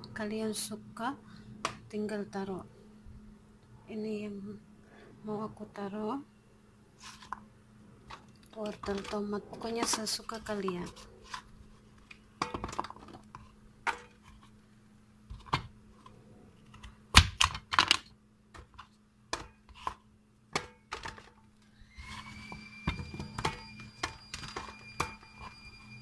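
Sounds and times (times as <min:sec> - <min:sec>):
steady low hum: 0:00.0 - 0:17.2
vegetables clattering in metal pan: 0:08.1 - 0:11.4, 0:12.4 - 0:14.4, 0:20.6 - 0:21.4
music: 0:21.8 - 0:26.0.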